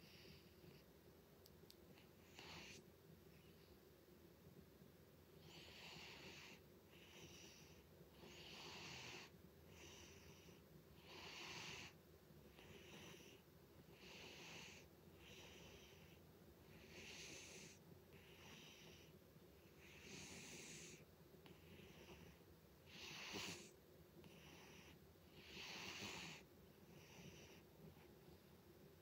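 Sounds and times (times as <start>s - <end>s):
cat snoring: 0.0s - 0.8s, 2.2s - 2.8s, 5.4s - 27.6s.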